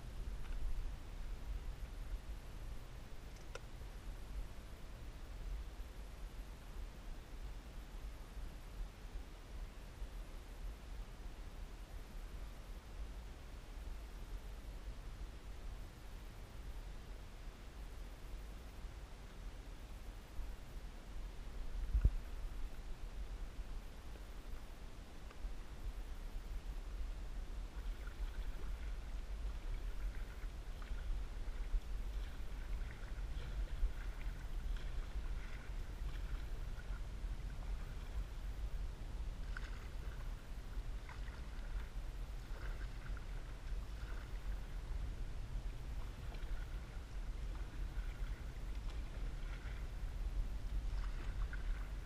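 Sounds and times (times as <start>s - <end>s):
steady low rumble: 0.0s - 52.0s
water lapping against canoe hull: 26.5s - 52.0s.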